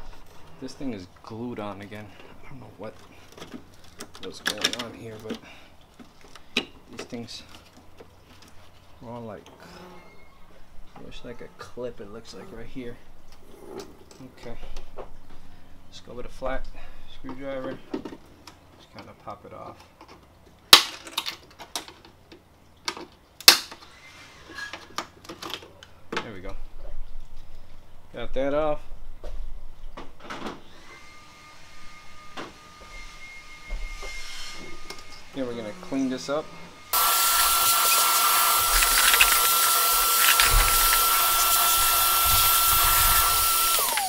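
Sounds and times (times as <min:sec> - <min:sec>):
shop vacuum whining: 0:30.6 - 0:44.0.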